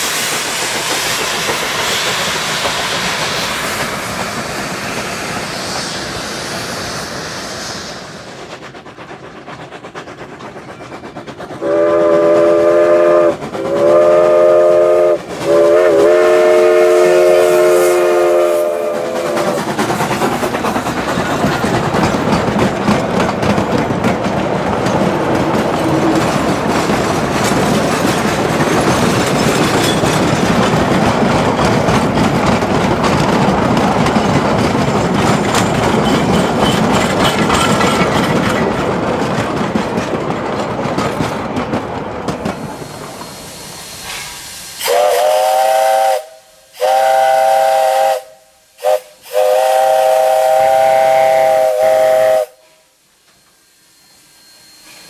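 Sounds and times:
freight train wheels clattering: 0.0s - 52.4s
steam locomotive whistle: 11.6s - 19.6s, 44.1s - 55.0s.

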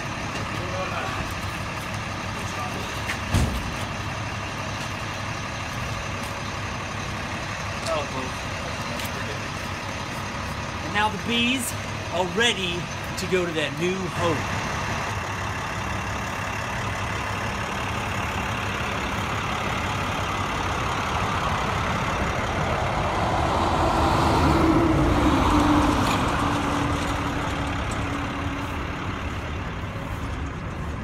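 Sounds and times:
road traffic rumble: 0.0s - 31.0s
vehicle engine passing: 14.2s - 31.0s.

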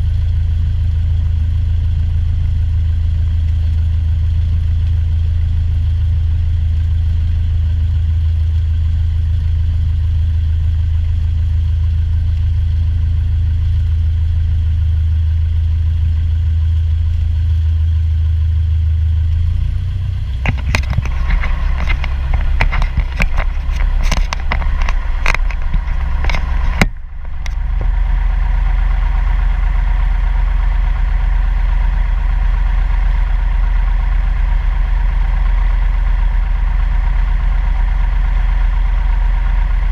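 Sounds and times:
light aircraft engine and propeller: 0.0s - 39.9s
sharp clicks and rattles: 19.3s - 29.8s.

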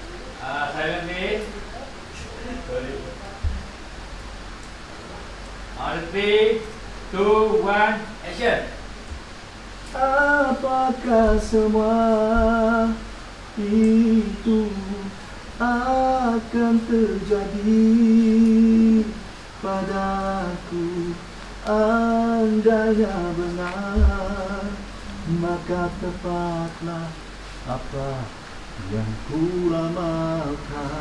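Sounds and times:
man singing unaccompanied: 9.9s - 31.0s.

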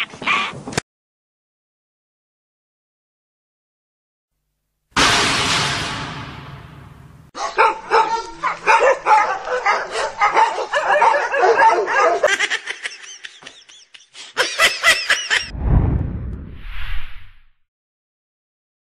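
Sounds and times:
dog yapping and yelping: 7.4s - 12.3s.

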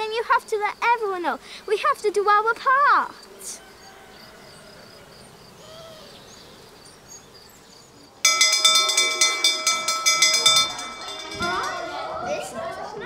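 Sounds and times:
school bell ringing rapidly: 8.3s - 12.9s.

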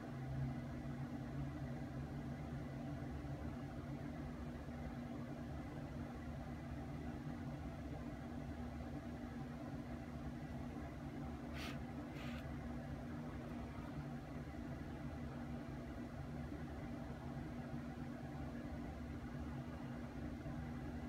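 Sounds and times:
low electrical hum: 0.0s - 21.0s
hand rustling on phone: 11.5s - 12.5s.

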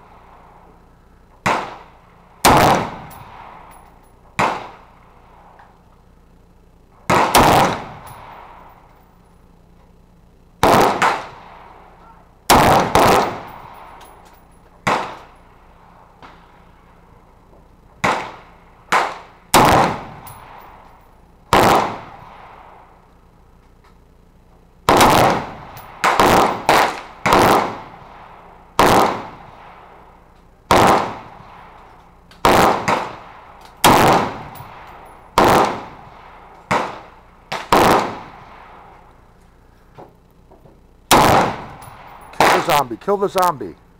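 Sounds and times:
rifle gunshots with echo: 1.4s - 3.7s, 4.4s - 4.9s, 7.1s - 8.7s, 10.6s - 11.8s, 12.5s - 14.0s, 14.8s - 15.4s, 18.0s - 20.8s, 21.5s - 22.8s, 24.9s - 29.9s, 30.7s - 31.8s, 32.4s - 38.9s, 41.1s - 43.0s.

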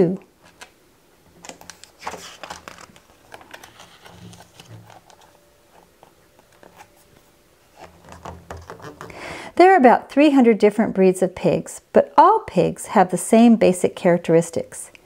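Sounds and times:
book page turning: 1.4s - 9.1s
soft paper rustling: 1.4s - 9.1s.

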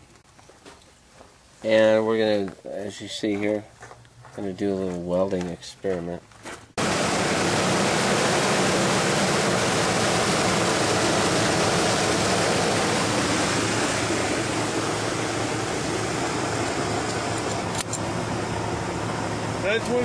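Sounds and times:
faint low engine hum: 0.0s - 20.0s
gas torch hissing roar: 6.8s - 20.0s.

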